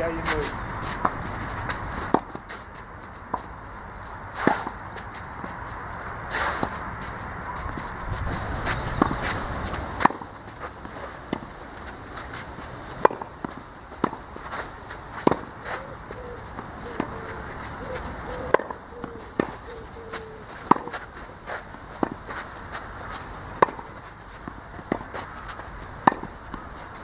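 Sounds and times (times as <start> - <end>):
tennis ball bouncing: 0.0 - 3.6, 4.3 - 27.0
footsteps scuffing on clay: 0.0 - 27.0
tennis ball off racket strings: 0.4 - 3.5, 8.9 - 11.5, 12.3 - 14.3, 15.2 - 15.5, 18.5 - 21.0, 23.0 - 27.0.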